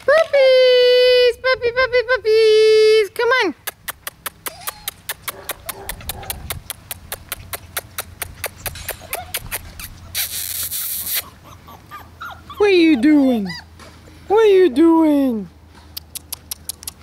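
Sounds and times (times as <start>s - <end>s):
quick even clicking: 3.6s - 11.3s, 15.9s - 17.0s
puppy whimpers: 4.4s - 5.3s, 7.1s - 13.9s.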